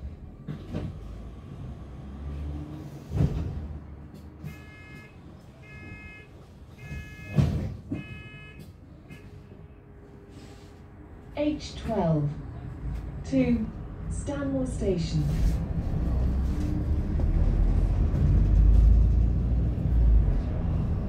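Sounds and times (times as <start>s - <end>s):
bus engine rumble: 0.0s - 21.0s
bus door warning beeps: 4.4s - 9.4s.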